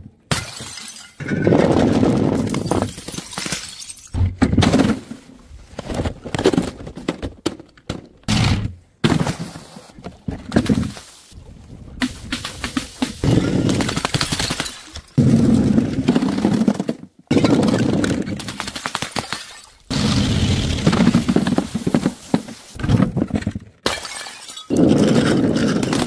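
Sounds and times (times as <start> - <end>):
glass bottles shattering: 0.3 - 1.5, 2.4 - 4.2, 19.2 - 19.9, 23.8 - 26.0
broken glass crunching: 2.5 - 4.2.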